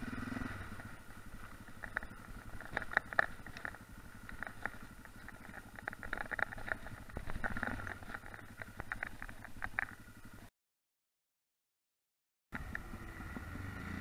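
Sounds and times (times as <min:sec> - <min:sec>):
motorcycle engine running: 0:00.0 - 0:10.5, 0:12.6 - 0:14.0
stones clicking and rattling: 0:01.5 - 0:10.0.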